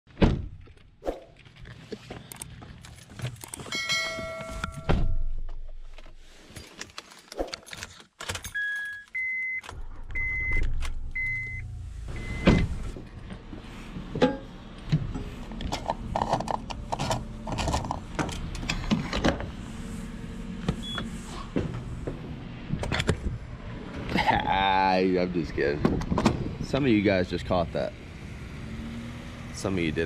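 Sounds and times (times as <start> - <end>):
keys jangling: 2.3 - 4.8
car chime beeping: 8.6 - 12.7.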